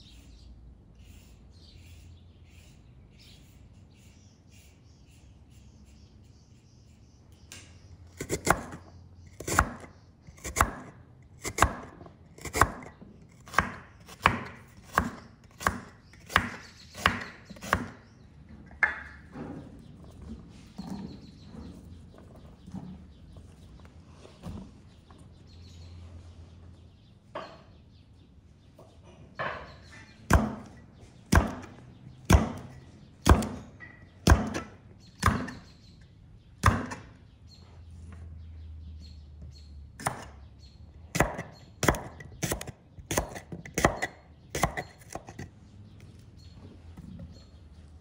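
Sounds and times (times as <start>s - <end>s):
knife chopping on wooden board: 9.4s - 12.9s, 13.5s - 18.0s, 30.3s - 30.7s, 31.3s - 35.6s, 40.0s - 40.3s, 41.2s - 45.4s.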